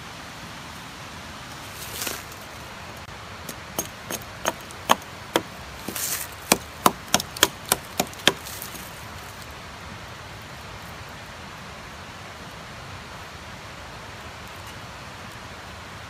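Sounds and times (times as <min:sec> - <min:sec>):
hatchet chopping wood: 0:03.4 - 0:08.8.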